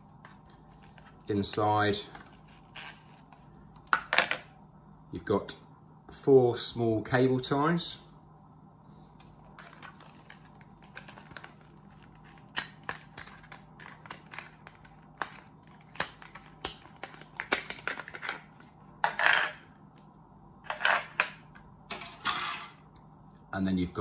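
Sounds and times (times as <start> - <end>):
plastic crackle: 9.4 - 18.7.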